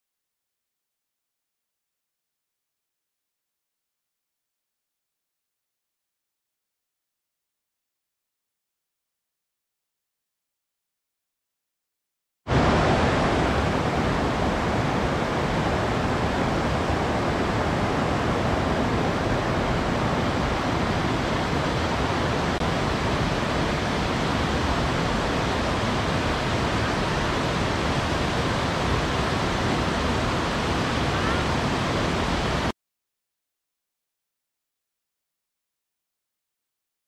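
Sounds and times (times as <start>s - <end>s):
water rushing into pool: 12.5s - 32.7s.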